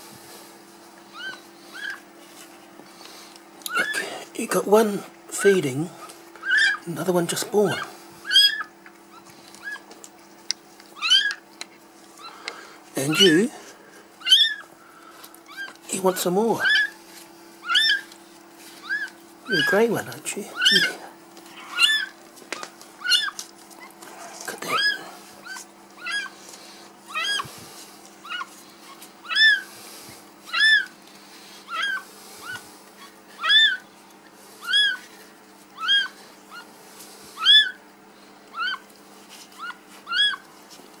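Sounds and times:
kitten mewing: 11.0 - 11.4, 14.2 - 14.6, 16.6 - 17.0, 17.6 - 18.1, 20.5 - 22.2, 23.0 - 23.4, 24.2 - 26.4, 27.1 - 27.6, 29.2 - 29.7, 30.5 - 30.9, 31.7 - 32.6, 33.4 - 33.8, 34.6 - 35.0, 35.8 - 36.7, 37.4 - 37.8.

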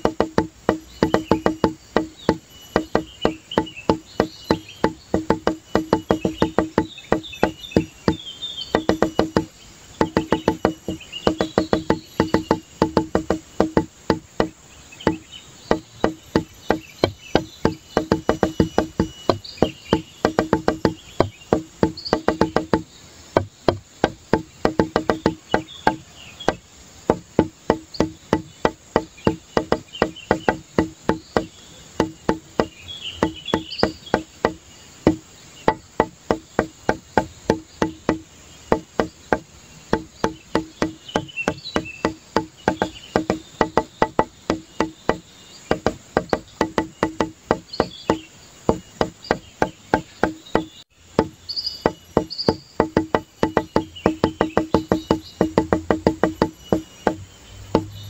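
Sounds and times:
wooden percussion music: 0.0 - 58.0.

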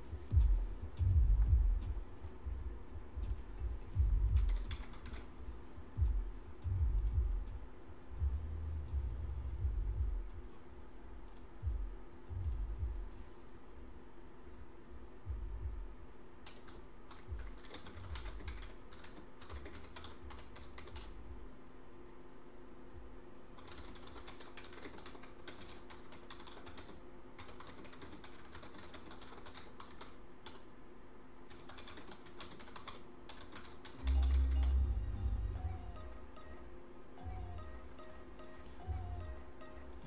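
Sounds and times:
faint steady hum: 0.0 - 40.0
typing on computer keyboard: 4.4 - 5.3, 16.4 - 21.2, 23.6 - 30.7, 31.5 - 34.8.

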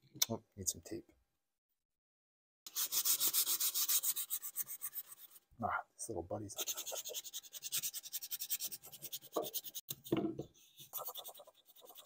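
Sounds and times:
sandpaper rasping on wood: 2.7 - 5.4, 6.6 - 9.8, 10.8 - 12.0.

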